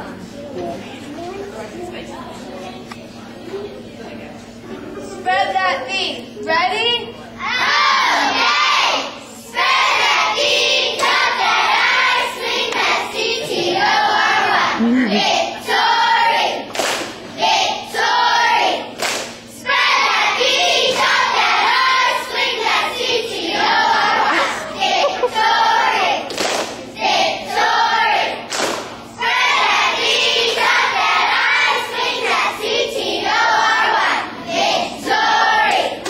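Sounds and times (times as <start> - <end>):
girls chanting a cheer: 7.4 - 36.0
sharp hand claps: 16.7 - 17.2, 19.0 - 19.4, 26.3 - 26.8, 28.5 - 29.0.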